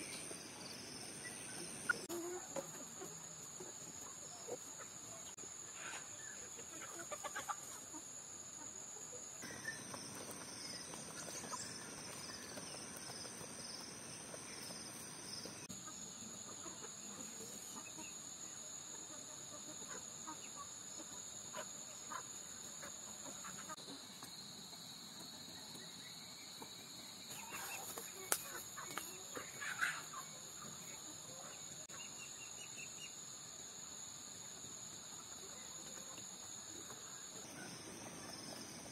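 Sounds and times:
hens clucking: 6.6 - 8.1, 26.6 - 31.6.

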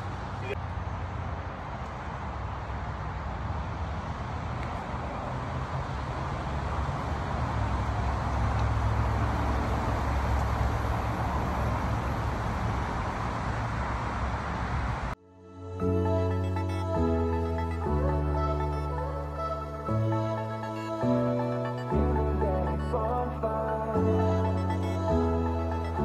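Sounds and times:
gentle music: 15.2 - 26.0.

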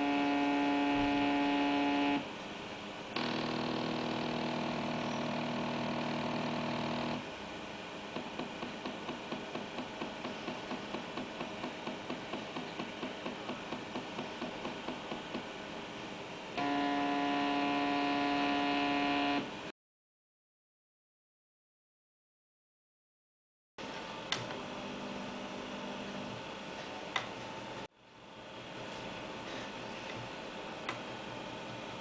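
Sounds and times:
stepper motor whining and ticking: 0.0 - 2.2, 3.2 - 7.2, 16.6 - 19.5.

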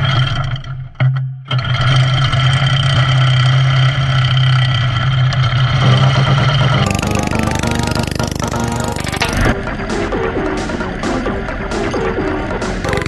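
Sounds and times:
small engine pull-started and running: 6.8 - 9.6.

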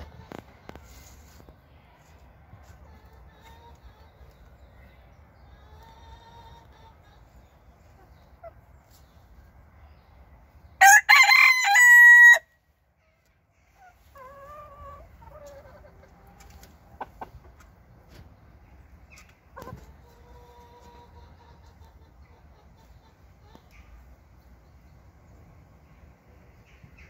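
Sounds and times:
rooster crowing: 10.8 - 12.5.

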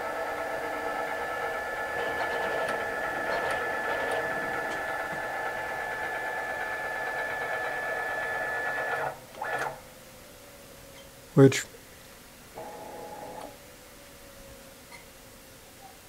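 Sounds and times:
stepper motors whining: 0.0 - 9.9, 12.6 - 13.6.

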